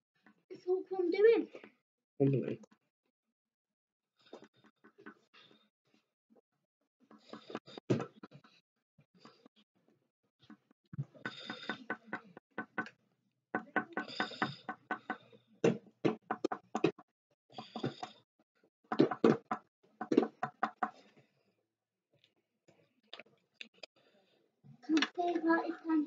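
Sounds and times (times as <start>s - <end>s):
pen tapping on paper: 11.2s - 12.9s, 13.6s - 17.0s, 18.9s - 21.0s.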